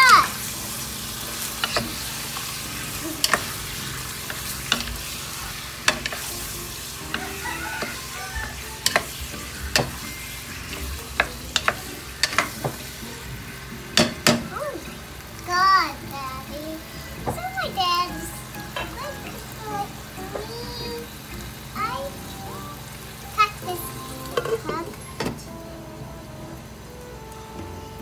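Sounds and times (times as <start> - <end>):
chicken sizzling in a pot: 0.0 - 28.0
wooden spoon knocking on pot: 8.8 - 10.0.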